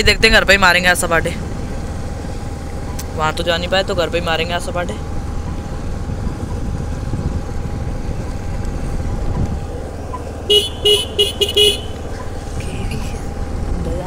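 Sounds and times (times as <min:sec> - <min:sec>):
motorbike engine rumble: 0:00.0 - 0:14.0
vehicle horn beeps: 0:10.5 - 0:12.1.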